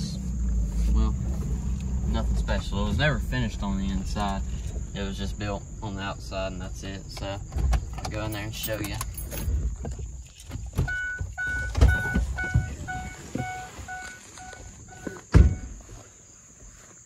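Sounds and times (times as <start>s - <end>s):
car door slamming: 10.8s - 14.2s, 14.9s - 15.8s
vehicle warning chime: 10.8s - 15.8s.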